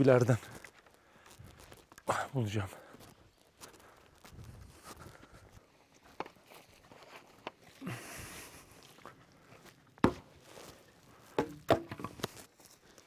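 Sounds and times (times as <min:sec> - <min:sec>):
footsteps through dry leaves: 0:00.4 - 0:01.9, 0:02.8 - 0:07.4, 0:08.5 - 0:11.3
dry branches knocking and snapping: 0:11.3 - 0:12.5.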